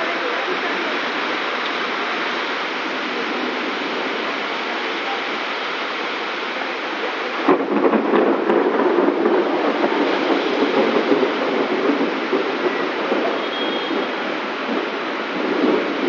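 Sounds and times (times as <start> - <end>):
heavy rain: 0.0 - 16.0
vehicles driving through floodwater: 0.0 - 16.0.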